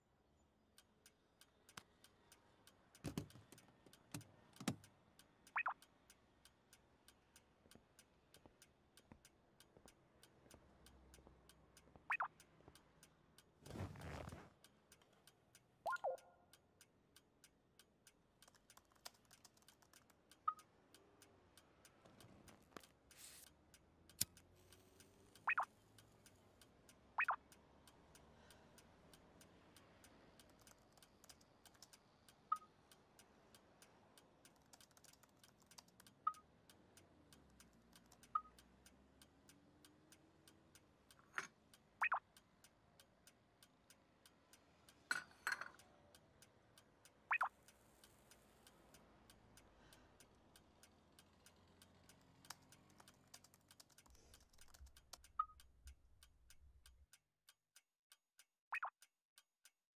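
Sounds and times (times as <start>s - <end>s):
sharp clicks: 18.4s - 26.4s, 27.2s - 28.2s, 33.8s - 38.9s, 42.0s - 42.5s, 47.3s - 47.5s, 50.8s - 57.0s.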